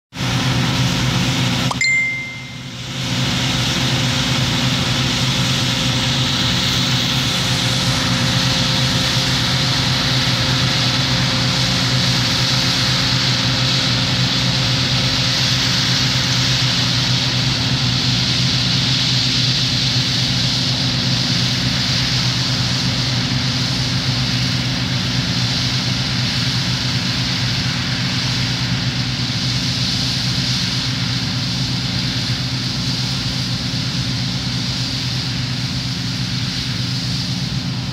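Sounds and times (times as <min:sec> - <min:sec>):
combine harvester engine hum: 0:00.2 - 0:37.9
short high tone: 0:01.7 - 0:02.8.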